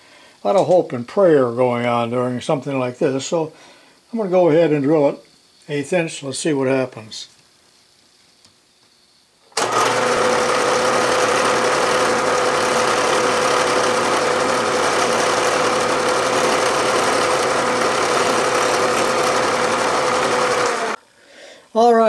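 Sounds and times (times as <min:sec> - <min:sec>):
drill boring through metal: 0:09.6 - 0:21.0.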